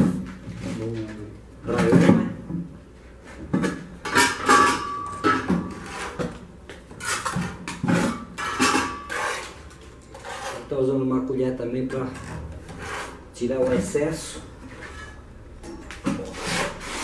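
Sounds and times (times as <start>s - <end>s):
ceramic block scraping metal bin: 3.4s - 6.4s, 7.0s - 10.8s, 11.8s - 15.3s, 16.1s - 17.0s.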